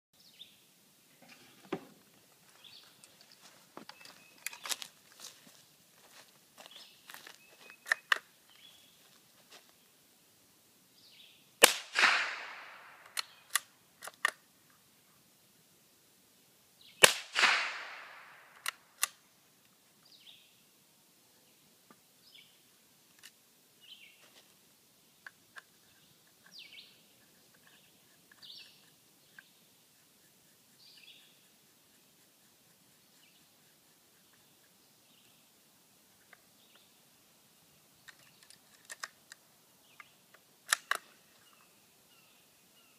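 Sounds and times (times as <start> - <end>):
rifle shots with echo: 11.6 - 13.2, 17.0 - 18.6.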